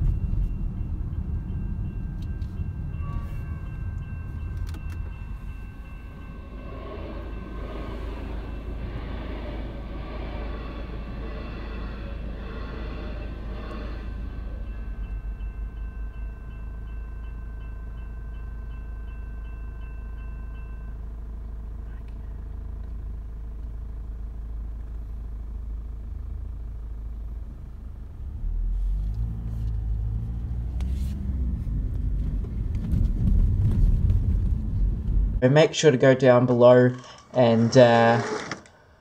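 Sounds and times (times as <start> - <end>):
road traffic rumble: 0.0 - 20.2, 20.9 - 35.4
level crossing warning bell: 0.0 - 22.0, 35.5 - 38.6.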